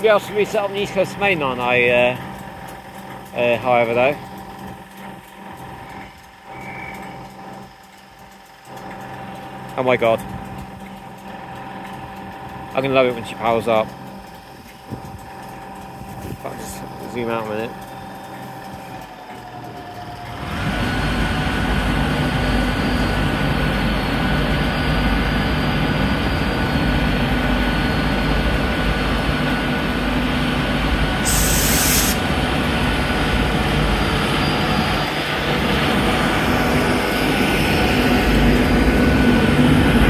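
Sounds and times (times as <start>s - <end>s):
locomotive rumble: 0.0s - 40.0s
high whine: 20.6s - 40.0s
sharp hiss of air: 31.2s - 32.3s.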